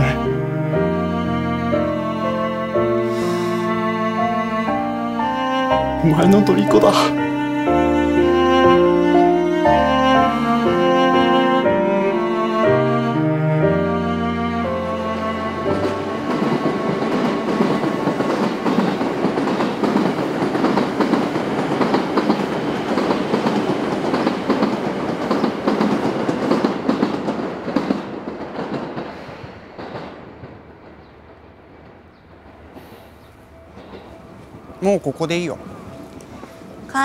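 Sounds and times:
train wheels clattering over rails: 14.8s - 34.8s.

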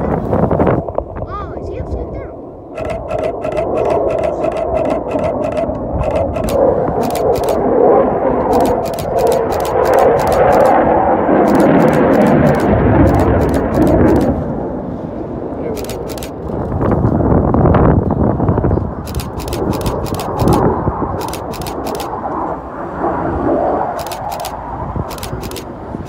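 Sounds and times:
jet engines rushing overhead: 0.0s - 26.0s
sharp clicks ticking: 2.8s - 7.6s, 8.5s - 10.8s, 11.4s - 14.4s, 15.8s - 16.6s, 19.1s - 22.1s, 24.0s - 25.7s.

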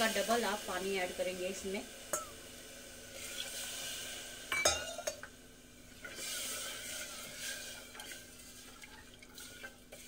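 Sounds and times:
ladle stirring in a pot: 5.9s - 10.0s
ladle scraping against pot: 6.0s - 10.0s.

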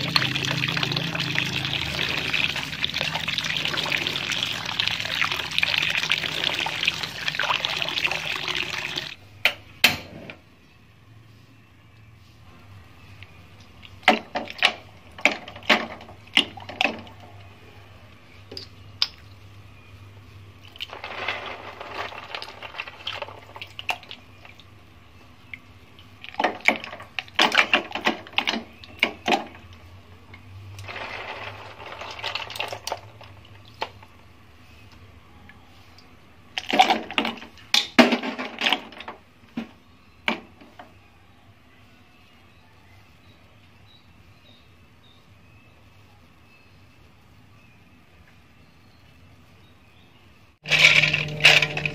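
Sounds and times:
snail shells clattering in a pot: 0.0s - 9.2s, 20.7s - 24.5s, 30.7s - 34.2s, 50.6s - 51.9s
low steady hum: 0.0s - 51.9s.

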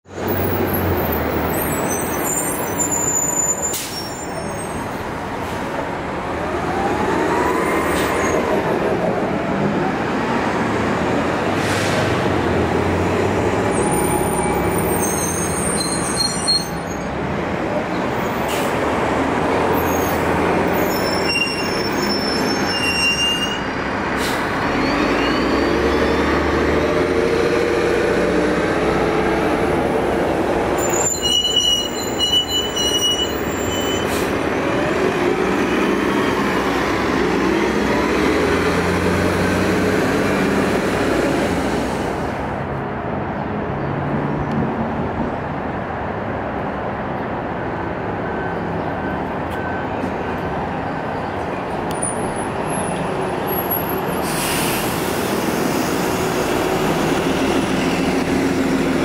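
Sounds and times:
bus whine: 0.0s - 59.0s
buses driving past: 0.0s - 59.0s
traffic noise: 0.0s - 59.0s.

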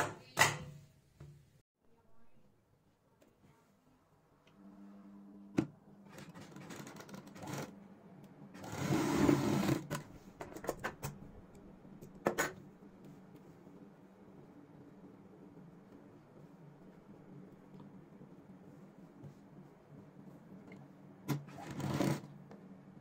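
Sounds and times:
sewing machine stitching: 6.2s - 7.7s, 8.6s - 10.1s, 21.3s - 22.3s.

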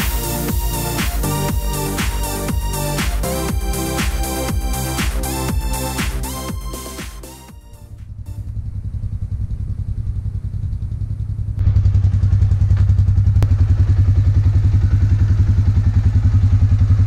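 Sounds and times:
atv engine idling: 7.9s - 17.0s.

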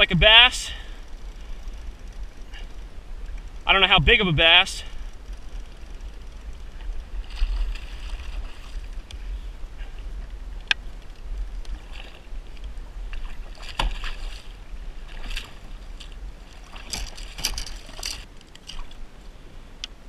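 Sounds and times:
fish splashing in water: 13.1s - 19.0s.

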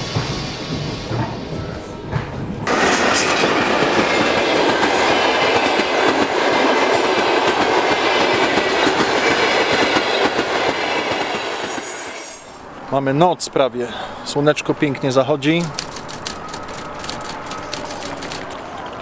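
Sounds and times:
train wheels clattering over rails: 0.0s - 12.2s, 15.5s - 19.0s.

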